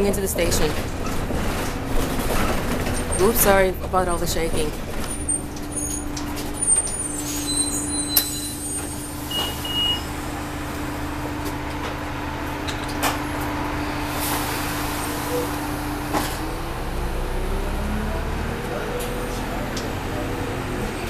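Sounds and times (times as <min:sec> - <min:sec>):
bus body rattles and knocks: 0:00.0 - 0:07.0, 0:11.1 - 0:13.6, 0:16.0 - 0:16.8
bus engine drone with whine: 0:00.0 - 0:21.0.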